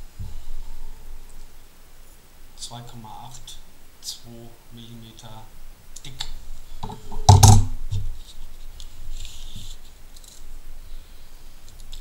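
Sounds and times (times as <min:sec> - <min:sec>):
rustling scrape on paper: 0:08.0 - 0:10.5.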